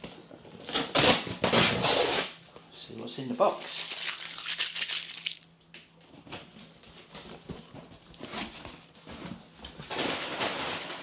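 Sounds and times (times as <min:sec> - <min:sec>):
packing paper crinkling: 0:03.5 - 0:05.7.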